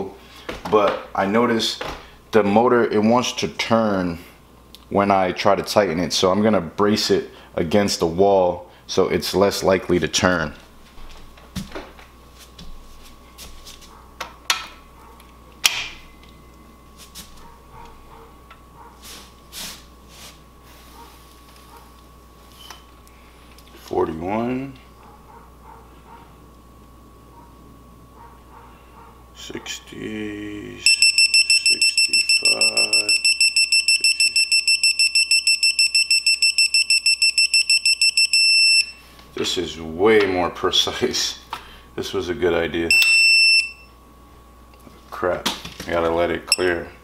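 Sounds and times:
torque wrench beeping: 30.8s - 39.0s, 42.9s - 43.9s.

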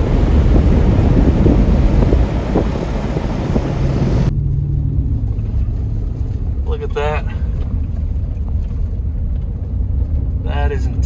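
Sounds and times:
wind buffeting microphone: 0.0s - 4.3s
vehicle cab hum: 0.0s - 11.0s.

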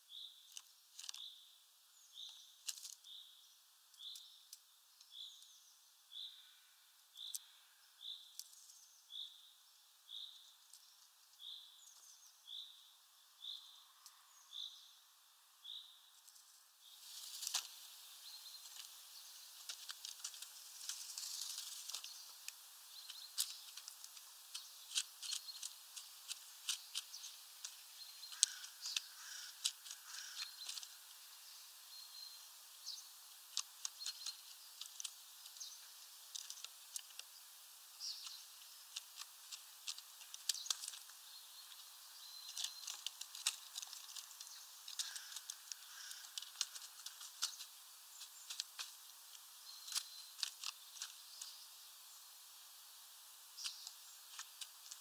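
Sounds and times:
birds pecking taps and clicks: 18.6s - 31.3s, 32.8s - 37.4s, 38.0s - 51.6s, 53.6s - 55.0s.

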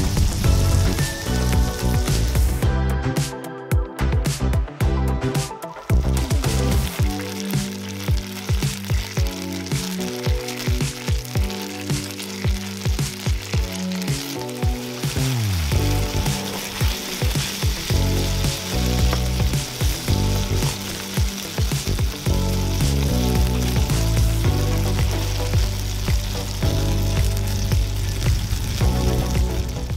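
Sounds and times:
food sizzling in a frying pan: 0.0s - 2.7s, 5.7s - 29.9s
music with bass and steady beat: 0.0s - 29.9s.

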